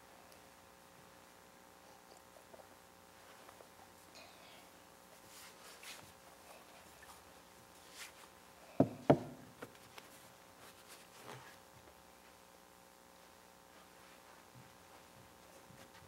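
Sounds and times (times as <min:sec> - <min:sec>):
sharp wooden knocks: 0:08.8 - 0:09.4.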